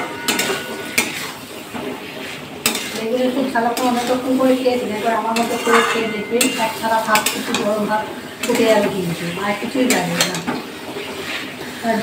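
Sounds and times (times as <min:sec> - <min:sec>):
spatula knocking pan: 0:00.0 - 0:01.3, 0:05.3 - 0:09.0, 0:09.8 - 0:10.7
spatula scraping metal pan: 0:00.0 - 0:07.8
light sizzle: 0:00.0 - 0:12.0.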